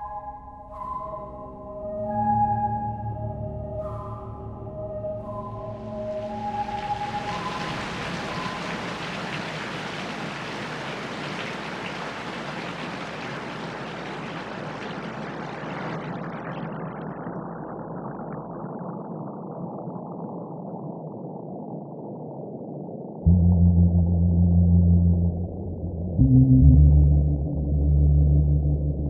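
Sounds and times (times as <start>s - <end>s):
waterfall rushing over rocks: 6.5s - 14.8s.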